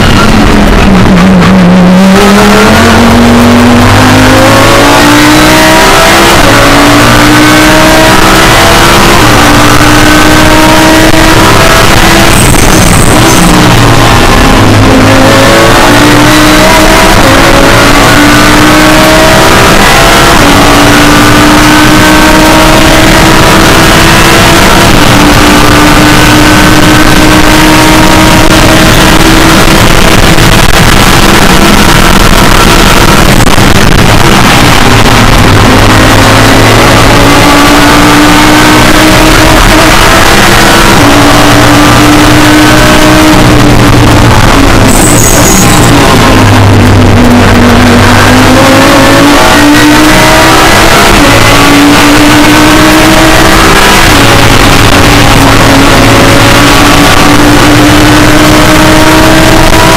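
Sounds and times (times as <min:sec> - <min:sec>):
race car engine at speed: 0:00.0 - 0:59.9.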